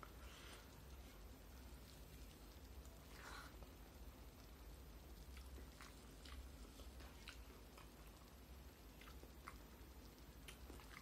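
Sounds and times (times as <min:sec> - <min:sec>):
low steady hum: 0:00.0 - 0:11.0
chewing smacks: 0:05.2 - 0:08.2, 0:08.8 - 0:11.0.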